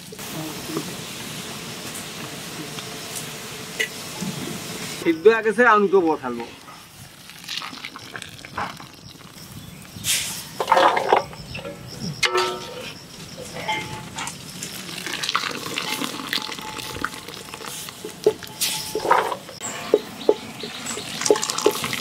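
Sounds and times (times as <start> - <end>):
water splashing and draining: 7.2 - 9.3, 14.8 - 18.4, 20.0 - 22.0
skimmer scraping metal pot: 10.1 - 22.0
skimmer clinking on metal: 10.6 - 14.4, 15.7 - 19.6.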